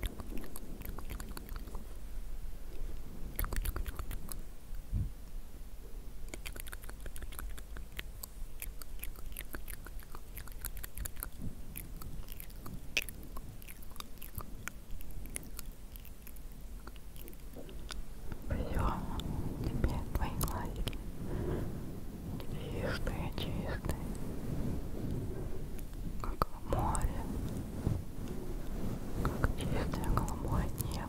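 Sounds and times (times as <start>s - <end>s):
small sharp clicks and crackles: 0.0s - 1.8s, 3.0s - 4.8s, 6.3s - 21.0s
low rumble: 9.7s - 31.0s.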